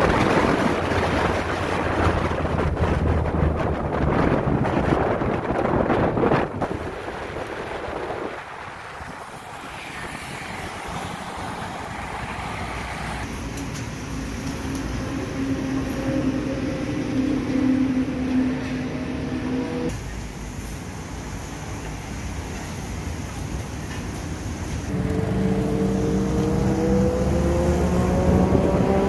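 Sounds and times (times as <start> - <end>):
motorbike engine and road noise: 0.0 - 29.0.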